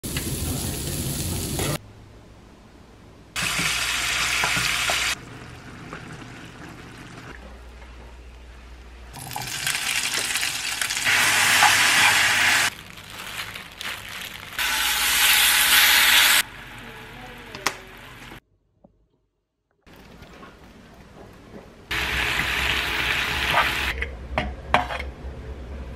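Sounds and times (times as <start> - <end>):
meat sizzling: 3.4 - 5.2, 9.2 - 18.4, 21.9 - 23.9.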